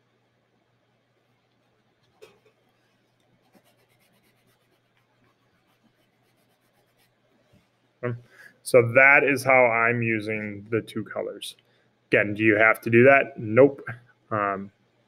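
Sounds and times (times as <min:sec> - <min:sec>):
pencil scratching on paper: 0:02.2 - 0:07.2.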